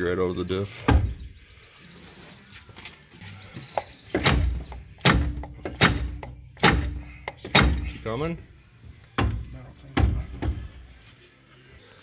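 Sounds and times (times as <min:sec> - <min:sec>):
dull metal clunks: 0:00.8 - 0:01.4, 0:03.7 - 0:08.2, 0:09.1 - 0:11.0.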